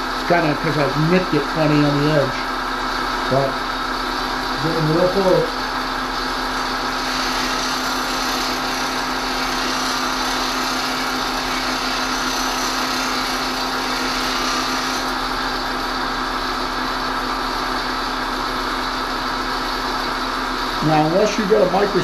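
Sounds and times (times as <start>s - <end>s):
bench grinder humming: 4.2s - 16.2s
metal grinding hiss: 7.0s - 15.2s.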